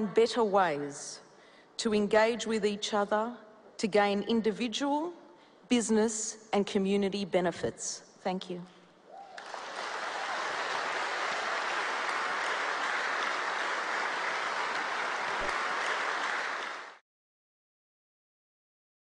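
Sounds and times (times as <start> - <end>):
audience applauding: 9.3 - 17.0.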